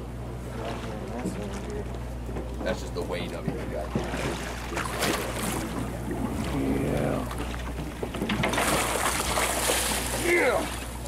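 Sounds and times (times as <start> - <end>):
boat engine humming: 0.0 - 11.0
water sloshing against hull: 0.0 - 11.0
water splashing: 3.8 - 11.0.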